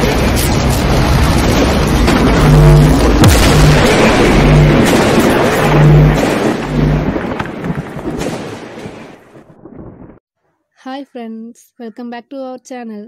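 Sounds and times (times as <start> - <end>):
loud rush of noise: 0.0 - 8.2
sharp crack: 0.0 - 9.4
deep booming pulses: 0.0 - 10.2.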